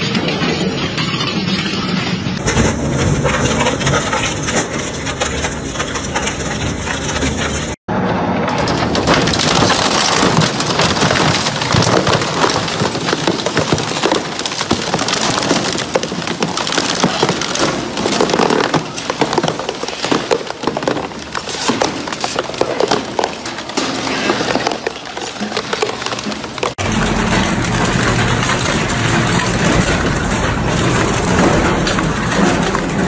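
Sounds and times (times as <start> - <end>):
shredder tearing plastic: 8.5 - 33.0
plastic cracking and snapping: 8.7 - 26.8.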